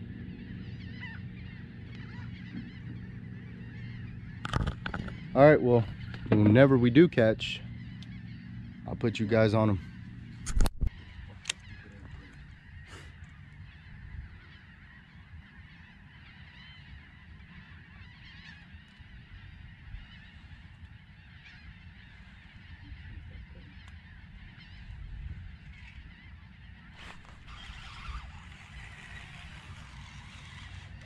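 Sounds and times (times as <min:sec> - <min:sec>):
birds chattering: 0:00.0 - 0:31.0
low steady rumble: 0:00.0 - 0:31.0.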